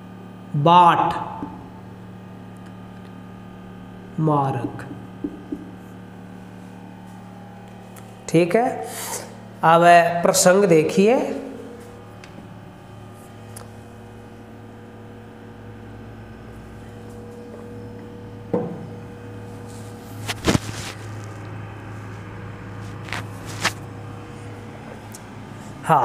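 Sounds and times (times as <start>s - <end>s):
low room hum: 0.0s - 26.0s
sharp knock: 4.6s - 5.7s.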